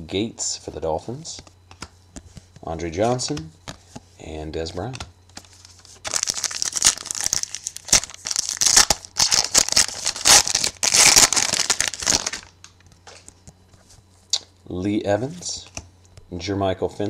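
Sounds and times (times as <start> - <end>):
foil wrapper crinkling and tearing: 5.4 - 12.6.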